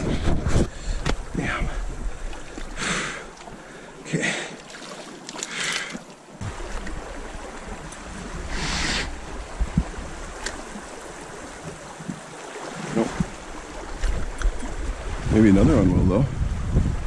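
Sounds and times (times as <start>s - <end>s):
wind rumble on microphone: 0.0s - 2.7s, 6.4s - 12.2s, 12.9s - 17.0s.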